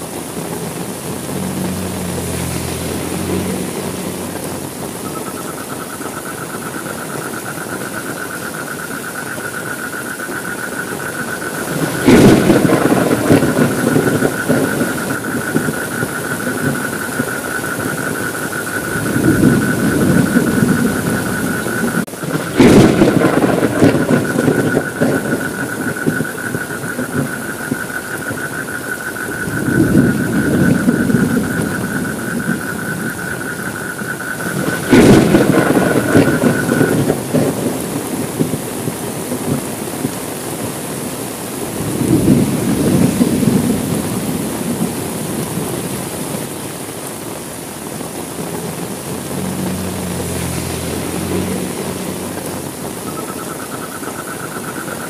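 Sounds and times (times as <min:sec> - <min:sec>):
rolling thunder rumbles: 0:00.0 - 0:07.8, 0:10.6 - 0:47.2, 0:47.8 - 0:54.8
heavy rain: 0:00.0 - 0:55.0
thunderclaps: 0:10.5 - 0:46.5.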